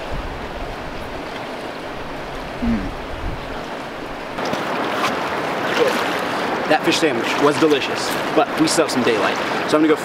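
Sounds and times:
river flowing over rocks: 0.0 - 10.0
person humming while chewing: 2.6 - 3.0.

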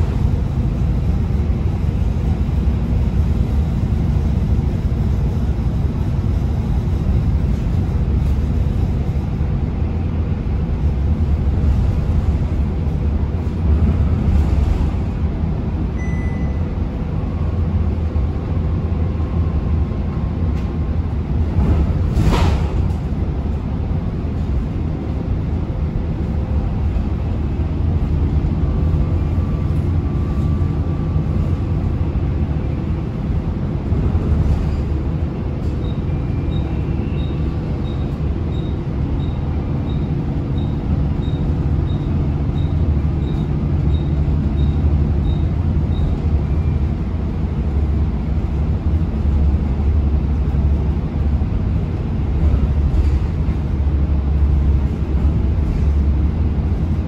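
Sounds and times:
bus diesel engine rumble: 0.0 - 57.0
road noise: 0.0 - 57.0.

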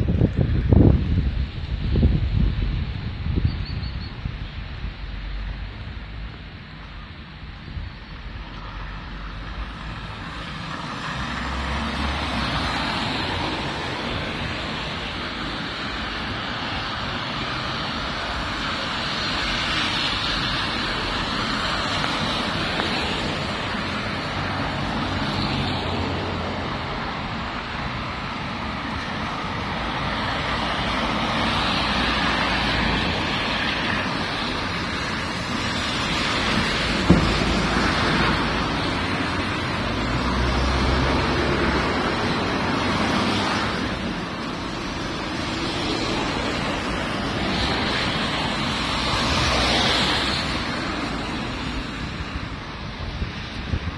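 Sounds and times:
tyres hissing on wet asphalt: 0.0 - 53.9
short sharp knock: 37.1 - 37.4.

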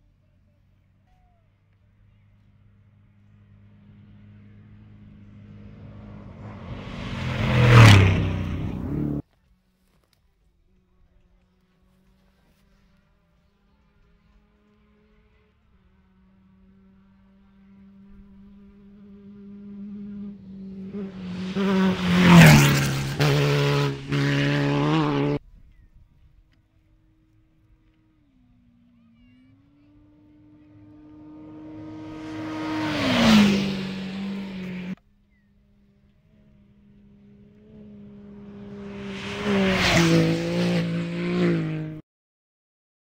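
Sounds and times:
race buggy engine passing: 0.4 - 9.2, 10.7 - 42.0
tyres on dirt rushing: 3.3 - 9.2, 19.4 - 25.4, 29.7 - 35.0, 35.8 - 42.0.

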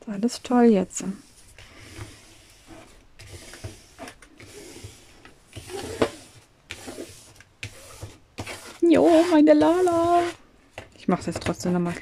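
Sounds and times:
fingertips rubbing plastic: 0.4 - 12.0
plastic scraper scraping plastic film: 1.0 - 12.0.

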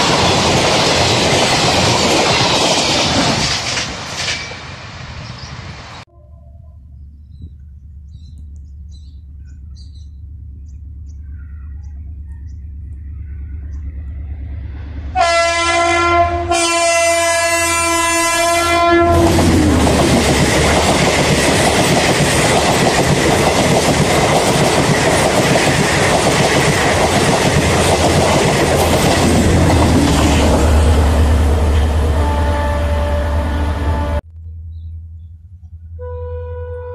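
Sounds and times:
diesel train rumble: 0.0 - 36.9
train horn blasts: 6.1 - 7.0, 15.1 - 19.8, 30.2 - 34.2, 35.9 - 36.9.

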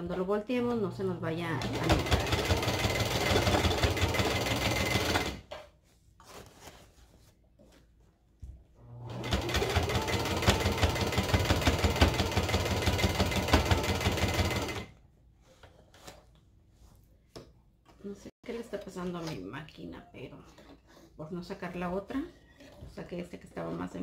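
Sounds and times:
sewing machine stitching: 1.5 - 5.4, 8.9 - 14.9.

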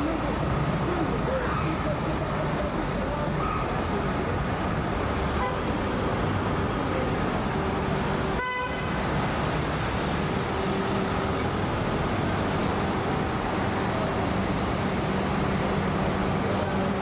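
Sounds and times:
traffic rumble: 0.0 - 17.0
vehicle horn toot: 5.4 - 5.7, 8.4 - 8.9.

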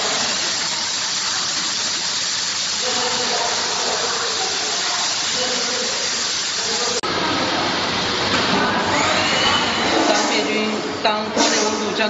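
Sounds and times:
steam hissing from valve: 0.0 - 7.0.

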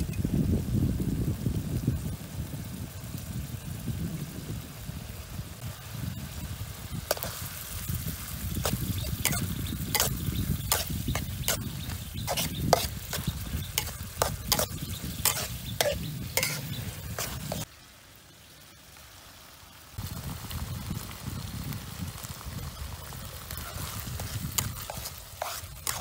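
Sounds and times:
low frying sizzle: 0.0 - 26.0
metal spatula scraping wok: 7.1 - 17.7, 23.5 - 26.0.

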